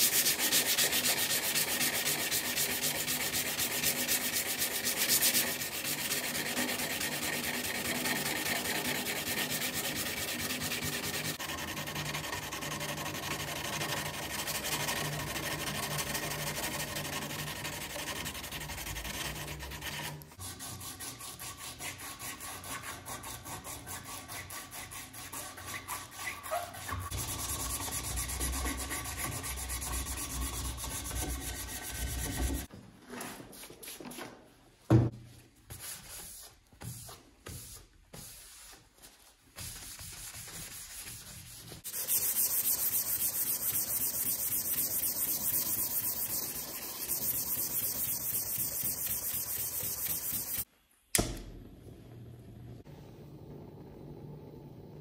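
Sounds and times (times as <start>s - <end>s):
sanding sponge scraping wood: 0.0s - 32.7s, 39.6s - 50.7s.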